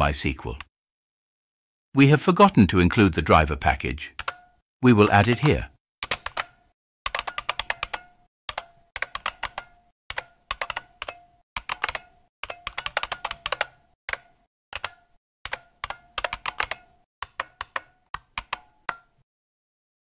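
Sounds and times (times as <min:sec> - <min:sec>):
keyboard typing clicks: 0:04.2 - 0:19.1.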